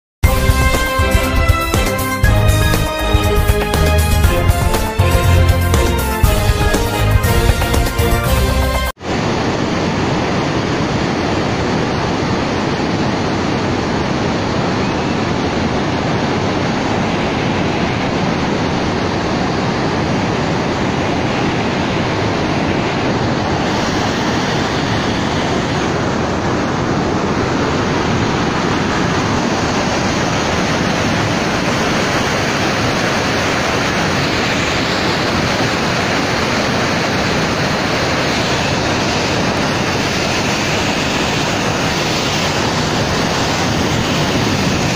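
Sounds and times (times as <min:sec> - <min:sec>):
floodwater pouring over spillway: 0:21.6 - 0:44.9.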